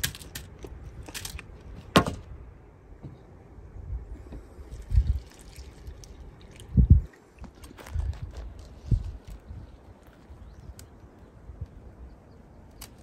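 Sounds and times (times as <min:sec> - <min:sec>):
milk trickling into a bowl: 0:04.7 - 0:06.8.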